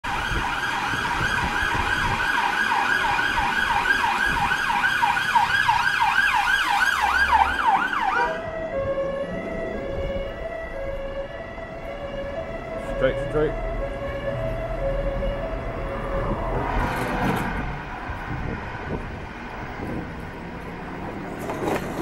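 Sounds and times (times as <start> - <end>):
siren yelping: 0.0 - 16.9
traffic noise: 0.0 - 22.0.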